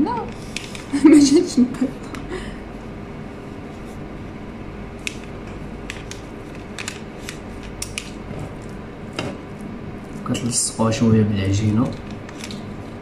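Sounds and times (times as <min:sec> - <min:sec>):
low room hum: 0:00.0 - 0:13.0
hands folding pastry sheets: 0:05.0 - 0:10.7, 0:11.6 - 0:13.0.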